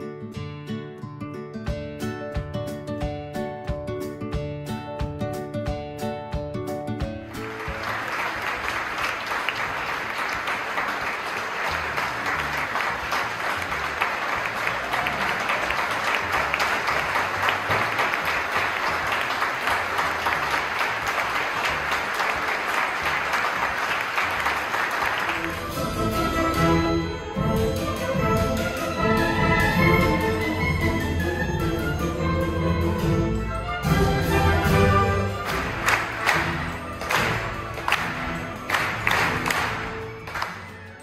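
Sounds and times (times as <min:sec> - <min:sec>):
audience applauding: 0:07.2 - 0:26.8, 0:34.2 - 0:41.0.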